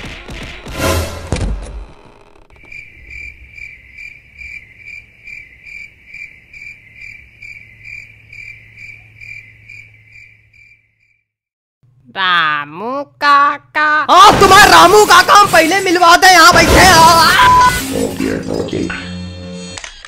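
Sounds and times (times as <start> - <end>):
thuds and crashes: 0.0 - 1.9, 14.2 - 15.8, 16.4 - 17.9
cricket chirping: 2.5 - 11.3.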